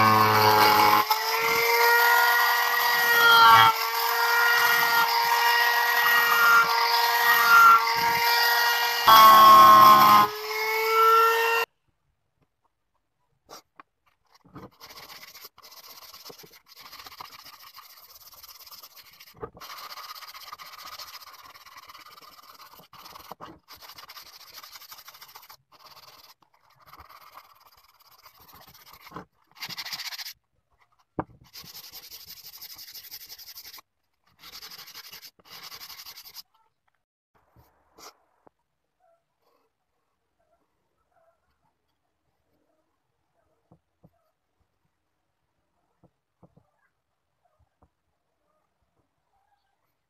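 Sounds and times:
sandpaper rubbing wood: 14.3 - 30.4, 31.4 - 36.5.

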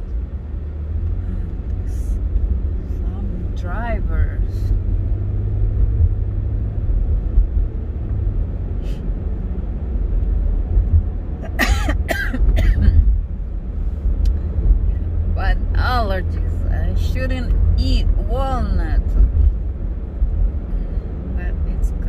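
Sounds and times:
car cabin road and engine rumble: 0.0 - 22.0
person coughing: 11.6 - 13.1.

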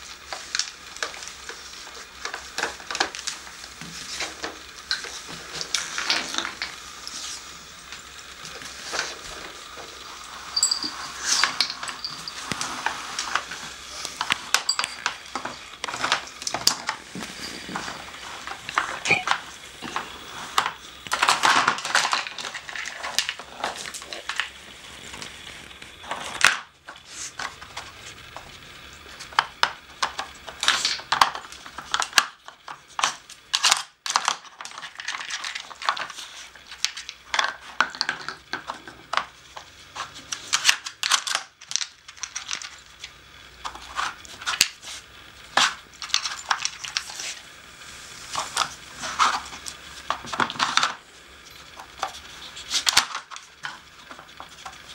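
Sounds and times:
plastic puzzle pieces clicking: 29.2 - 42.8.

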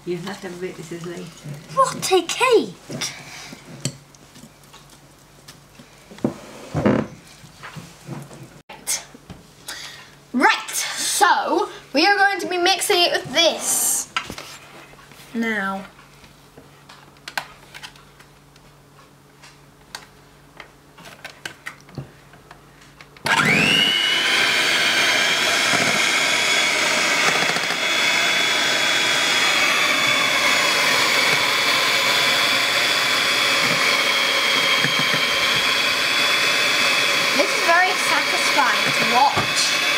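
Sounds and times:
electric hand mixer whirring: 23.2 - 39.9.

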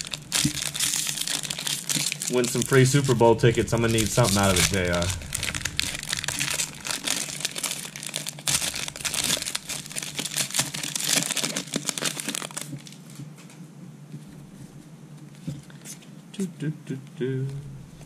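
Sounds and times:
plastic wrapper crinkling: 0.0 - 13.6.

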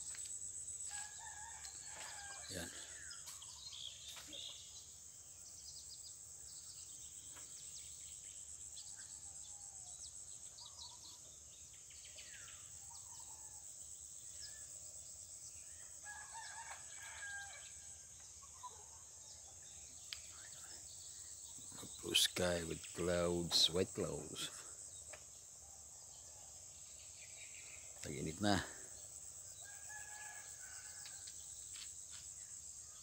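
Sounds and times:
rooster crowing: 0.9 - 2.8, 16.0 - 17.9, 29.6 - 31.3
small birds chirping: 5.7 - 13.6, 18.2 - 25.6, 26.9 - 29.3.

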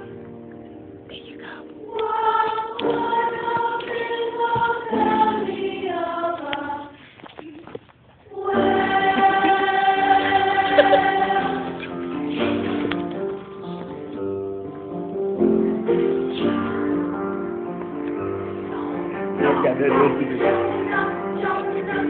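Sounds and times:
choir singing sustained chords: 1.8 - 7.0, 8.3 - 12.6, 18.3 - 22.0.

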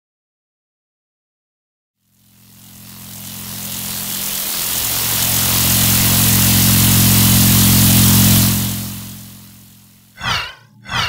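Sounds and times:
low drone: 2.1 - 11.0.

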